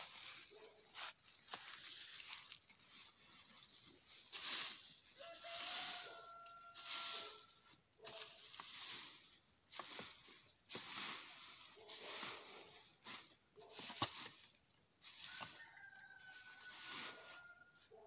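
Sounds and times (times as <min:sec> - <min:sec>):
rake scraping through dry leaves: 0:00.0 - 0:17.8
rooster crowing: 0:05.2 - 0:07.6, 0:15.2 - 0:18.0.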